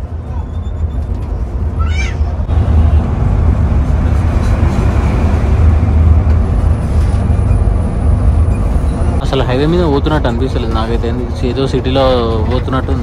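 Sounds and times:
road and tyre rumble in bus: 0:00.0 - 0:13.0.

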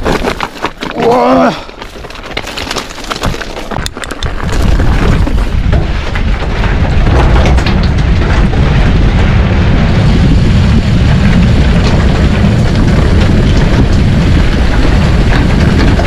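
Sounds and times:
bike clicks and rattles: 0:00.0 - 0:16.0
wind buffeting microphone: 0:04.2 - 0:16.0.

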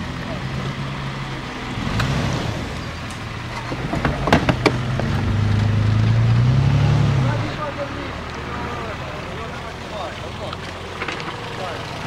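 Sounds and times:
engine revving under load: 0:00.0 - 0:12.0
sharp knocks: 0:03.5 - 0:05.5.

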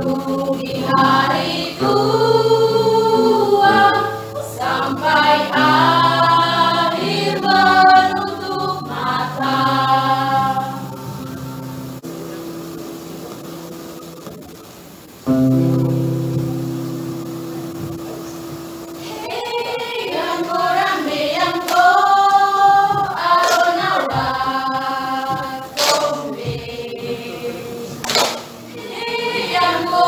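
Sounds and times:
mixed choir singing in harmony: 0:00.0 - 0:12.4, 0:19.0 - 0:30.0.

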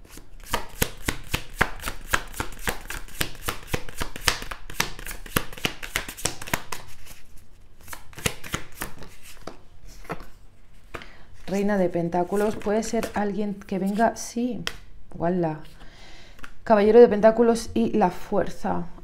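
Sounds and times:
cards being shuffled: 0:00.0 - 0:14.1.

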